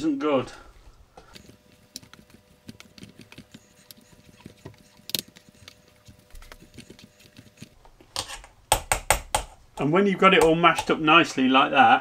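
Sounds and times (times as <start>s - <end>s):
potato masher clicking in saucepan: 10.3s - 11.0s.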